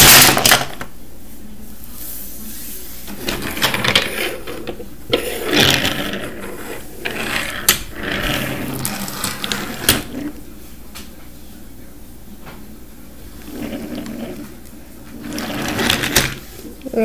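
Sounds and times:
toy train wheels rolling: 15.1s - 16.4s.

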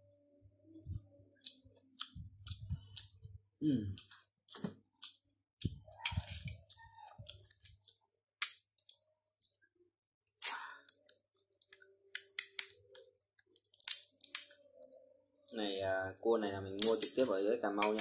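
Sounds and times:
shears cracking crab shell: 7.3s - 9.1s, 10.3s - 14.7s, 16.4s - 18.0s.

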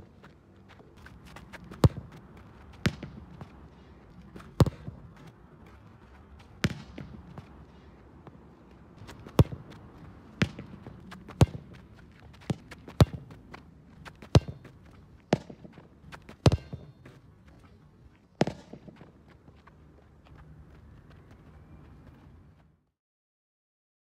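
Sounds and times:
ball bouncing on pavement: 0.2s - 8.4s, 9.0s - 19.8s
soccer ball kicks: 0.7s - 7.6s, 9.0s - 17.6s, 18.3s - 19.6s.

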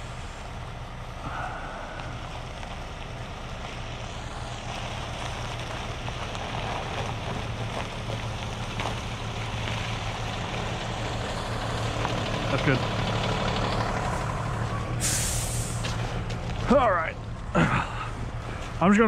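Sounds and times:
diesel truck engine hum: 0.0s - 19.0s.

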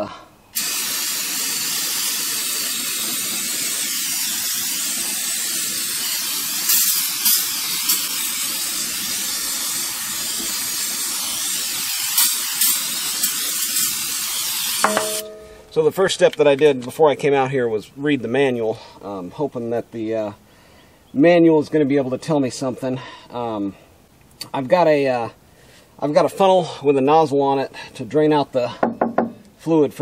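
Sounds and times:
aerosol can spraying: 0.6s - 15.2s.

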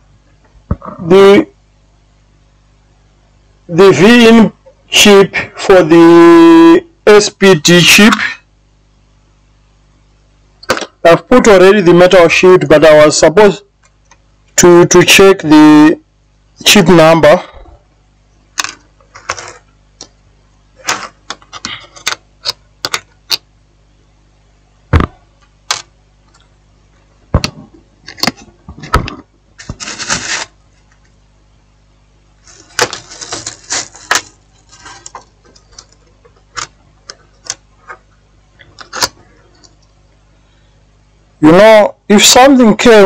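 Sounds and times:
scraping: 32.4s - 36.0s.

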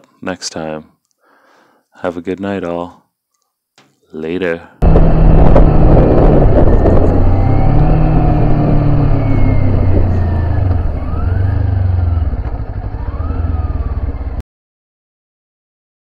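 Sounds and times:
motorcycle engine running: 4.8s - 14.4s.

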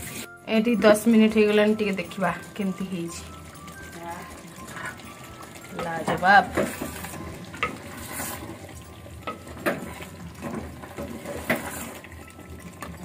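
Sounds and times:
spoon knocking and scraping pot: 4.3s - 13.0s.

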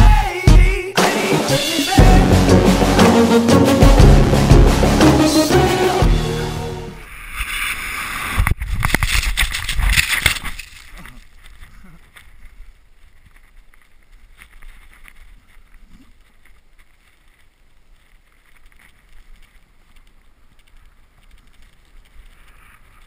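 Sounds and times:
snow crunching: 6.9s - 23.0s
skis hissing through snow: 7.0s - 8.5s.

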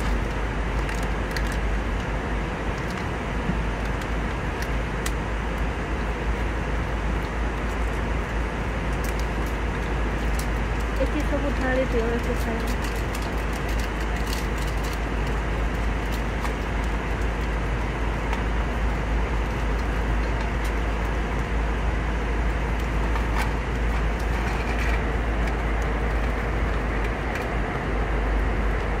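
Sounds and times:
foil snack packet crackling: 0.0s - 2.0s, 7.2s - 21.5s
airliner cabin engine roar: 0.0s - 29.0s.

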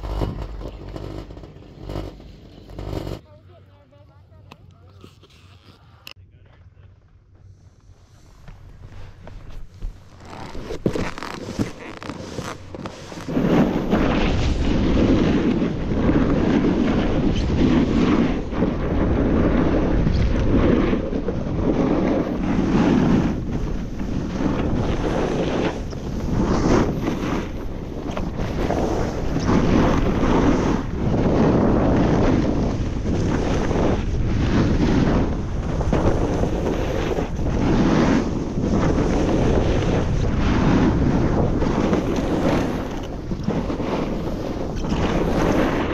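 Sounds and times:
snowboard scraping on snow: 0.0s - 3.2s, 8.0s - 45.9s
wind rushing over microphone: 10.8s - 45.9s.

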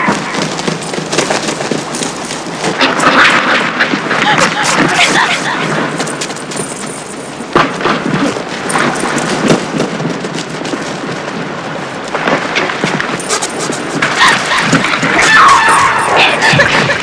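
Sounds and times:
thuds and blows: 0.0s - 11.4s
bodies struggling on ground: 0.0s - 17.0s.

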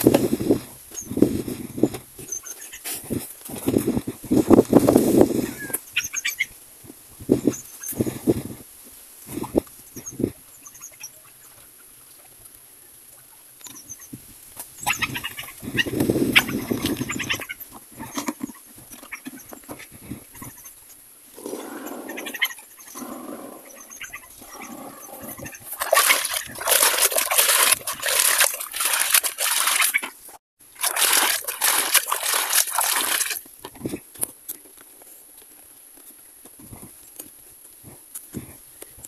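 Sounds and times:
liquid pouring into plastic bucket: 25.8s - 30.1s, 30.8s - 33.4s.

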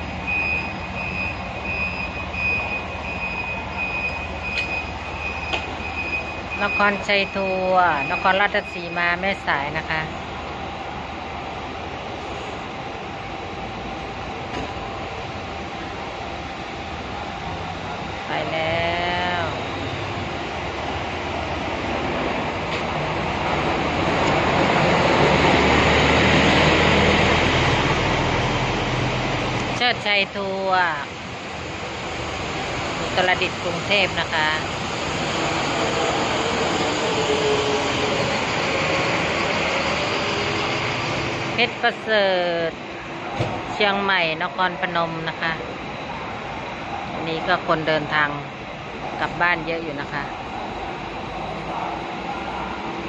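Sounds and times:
bus diesel engine running: 0.0s - 53.0s
high beep: 0.2s - 9.0s
coach diesel engine passing: 17.3s - 29.8s, 31.1s - 43.2s.

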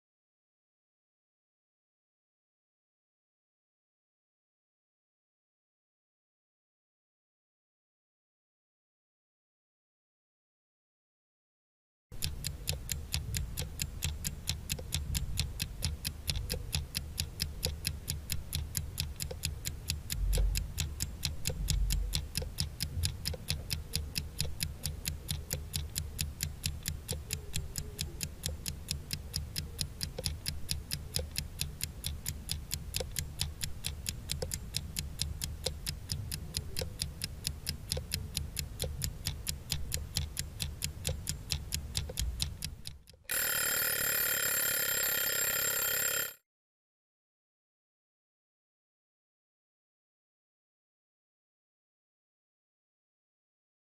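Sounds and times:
clock ticking: 12.1s - 46.4s.

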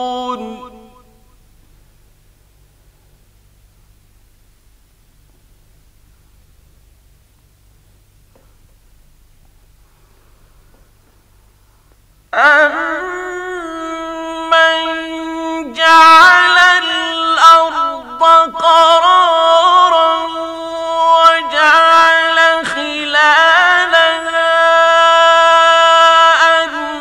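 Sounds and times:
man chanting melodically: 0.0s - 1.4s, 12.4s - 27.0s.

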